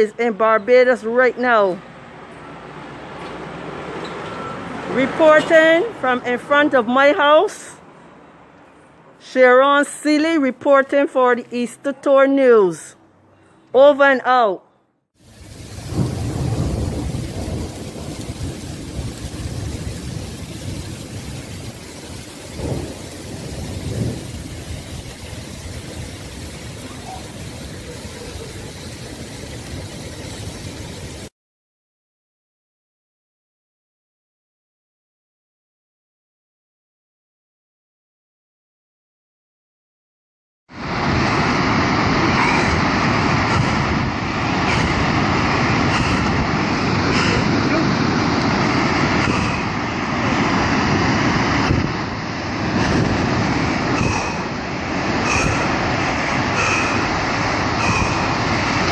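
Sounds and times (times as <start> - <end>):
hail and rain falling: 15.2 - 31.3, 40.8 - 58.9
seawater rushing over rocks: 40.8 - 58.9
low rumble: 41.2 - 58.9.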